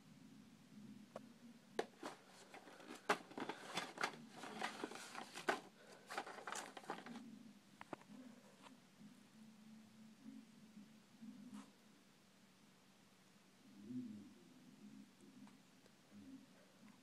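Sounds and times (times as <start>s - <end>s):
paper rustling and crinkling: 1.8s - 8.0s.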